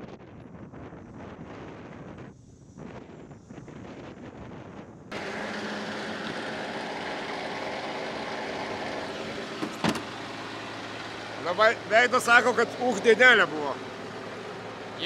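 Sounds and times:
car engine idling: 5.1s - 15.0s
rally car driving: 5.1s - 15.0s.

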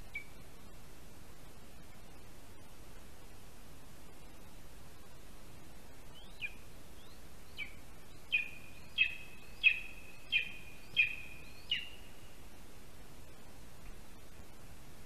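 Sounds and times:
eagle calling: 7.6s - 12.1s.

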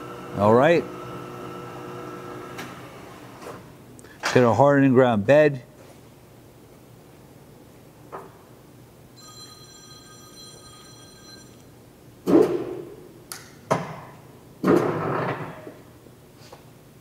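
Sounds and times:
small click: 13.3s - 13.6s.

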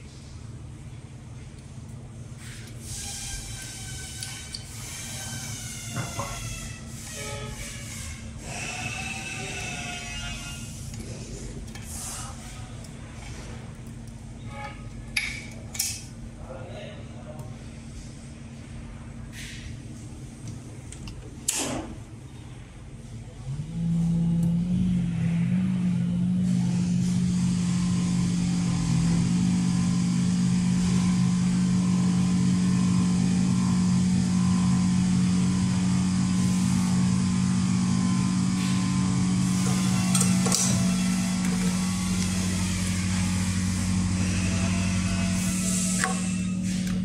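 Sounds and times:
machine motor humming: 2.7s - 14.3s, 23.1s - 47.0s.

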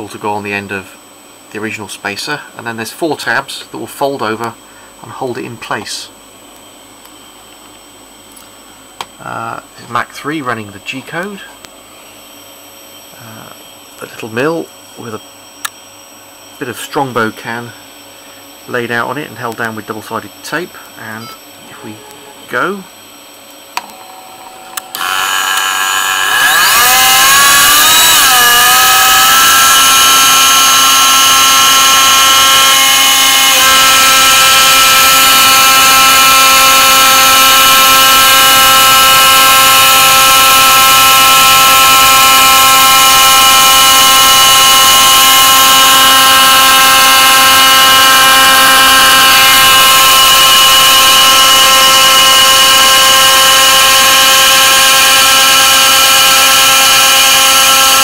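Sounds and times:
mill motor whining: 21.0s - 23.0s, 23.7s - 58.0s
end mill cutting aluminium: 24.8s - 58.0s.

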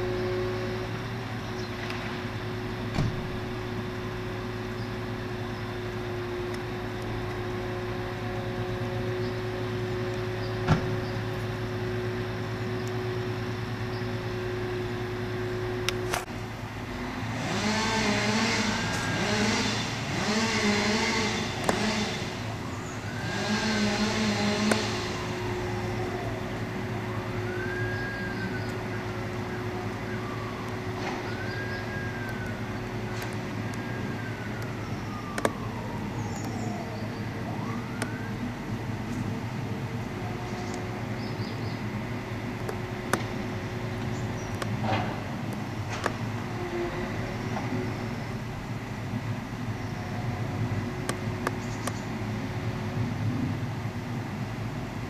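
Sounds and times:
crane engine droning: 0.0s - 55.0s
machine whine rising and falling: 17.4s - 26.4s.

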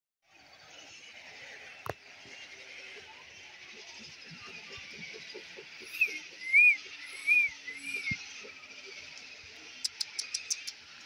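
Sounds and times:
birds whistling: 3.3s - 10.9s.

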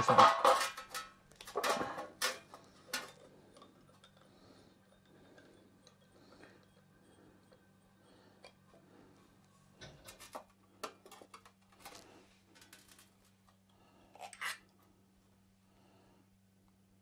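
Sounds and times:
clatter on metal tray: 0.0s - 3.2s
metal clinks and scrapes: 14.2s - 14.7s.

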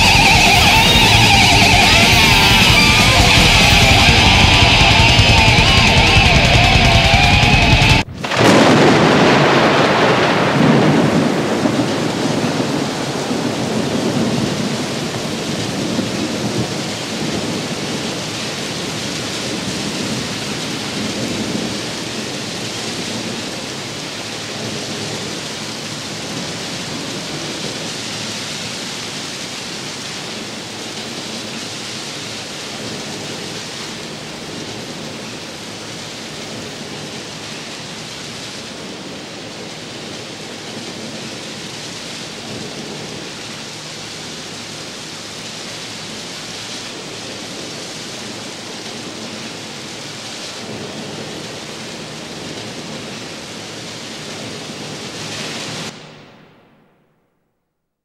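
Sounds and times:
thunder rumbling: 0.0s - 27.9s
heavy rain hiss: 0.0s - 57.1s.

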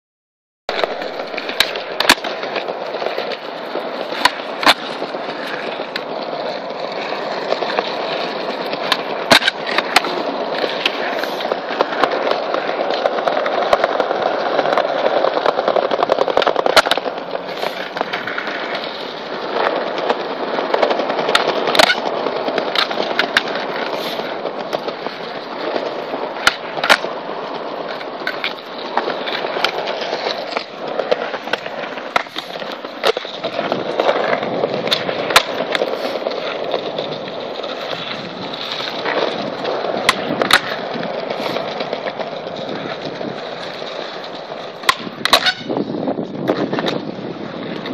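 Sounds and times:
skateboard popping and landing: 0.7s - 47.9s
skateboard wheels rolling on bricks: 0.7s - 47.9s.

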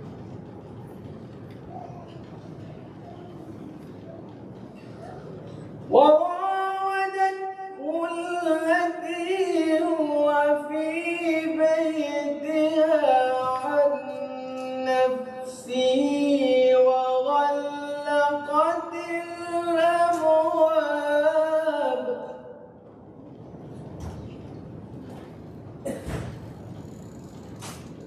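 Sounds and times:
man reciting melodically: 5.9s - 22.7s.

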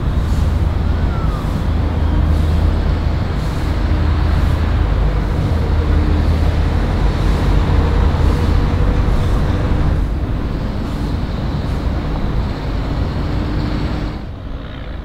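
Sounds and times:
faint engine hum: 0.0s - 15.0s
road traffic rumble: 0.0s - 15.0s.

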